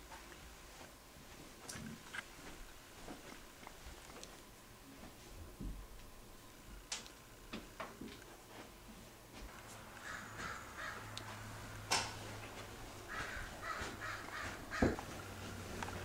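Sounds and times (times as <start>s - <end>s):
crows cawing: 9.9s - 11.7s, 12.9s - 15.3s.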